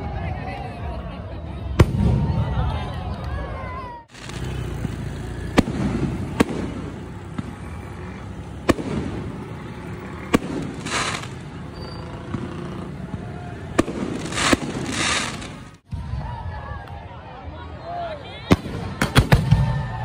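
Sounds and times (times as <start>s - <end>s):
outdoor background: 0.0s - 20.0s
fireworks bangs: 4.1s - 16.1s
firework hissing burst: 10.2s - 12.4s, 13.8s - 15.8s.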